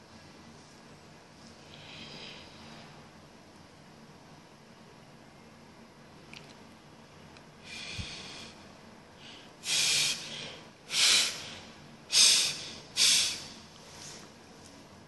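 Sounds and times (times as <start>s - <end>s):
man breathing hard: 1.6s - 3.0s, 7.6s - 13.8s.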